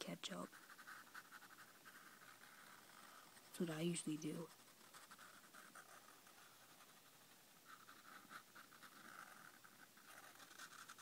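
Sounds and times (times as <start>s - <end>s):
marker scratching on paper: 0.0s - 11.0s.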